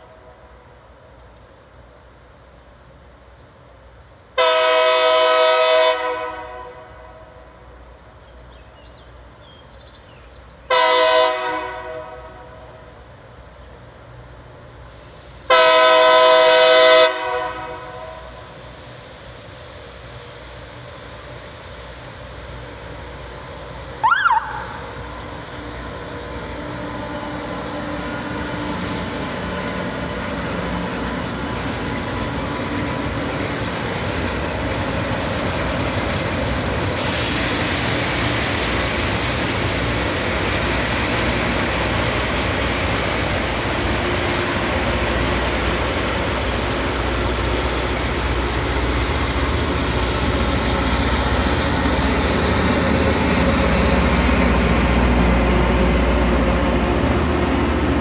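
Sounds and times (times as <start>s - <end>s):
harsh hissing rail grinding: 12.2s - 24.0s, 24.8s - 58.0s.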